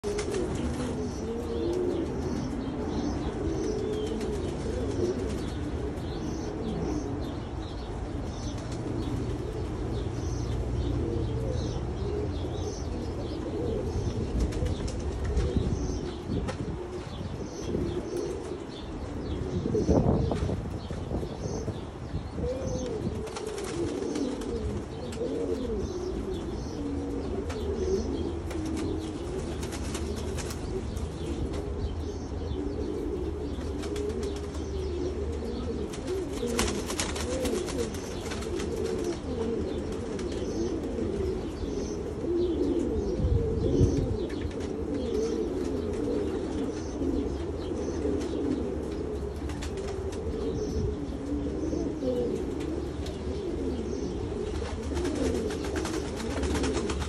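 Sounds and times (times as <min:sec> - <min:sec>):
pigeons cooing: 0:00.0 - 0:57.0
rustles: 0:00.0 - 0:57.0.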